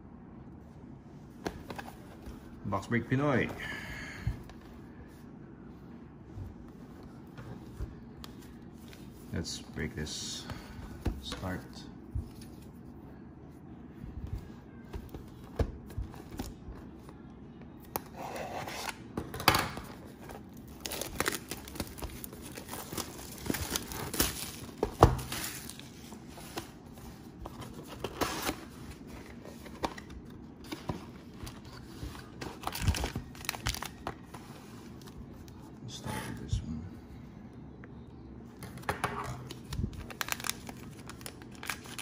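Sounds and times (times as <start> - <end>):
plastic wrapping tearing and crinkling: 20.6 - 25.8, 32.6 - 34.3, 39.4 - 42.0.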